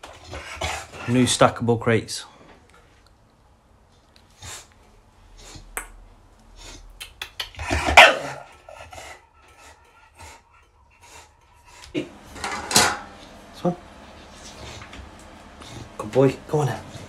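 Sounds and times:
puppy barking: 7.6 - 8.6.

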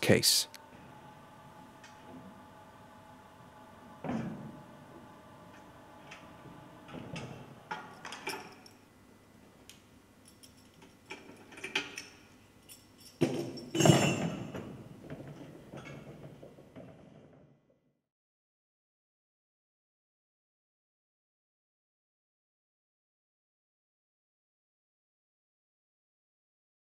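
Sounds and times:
metal shackles clinking: 10.2 - 14.7
metal hardware clattering: 12.7 - 16.1.

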